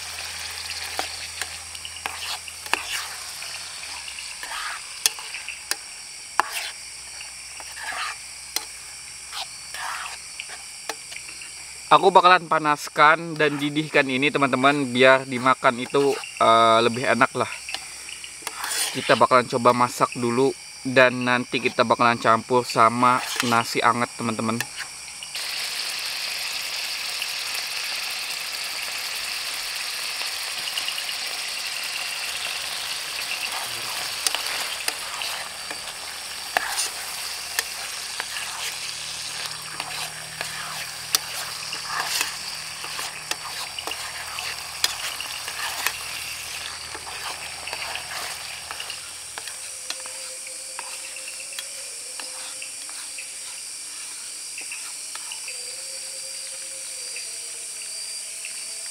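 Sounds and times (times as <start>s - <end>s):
food sizzling in pan: 0.0s - 58.9s
stirring clicks and scrapes: 0.6s - 11.4s, 15.8s - 16.4s, 17.7s - 19.2s, 23.1s - 23.7s, 32.1s - 55.5s.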